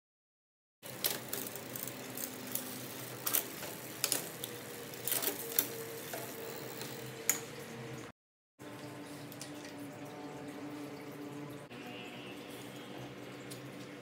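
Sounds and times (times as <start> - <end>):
bicycle chain whirring: 0.8 - 7.5
sharp derailleur clicks: 0.9 - 7.5.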